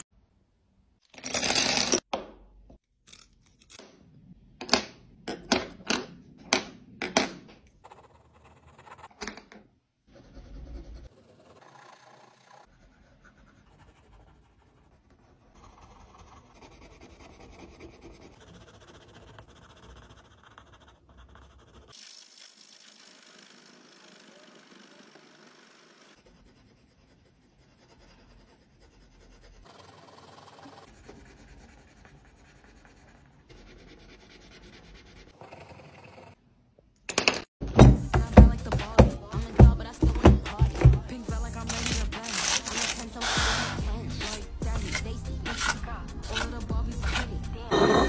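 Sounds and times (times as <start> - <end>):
pencils scratching on paper: 7.7 - 9.2, 10.1 - 22.0, 23.0 - 36.4, 38.2 - 48.0.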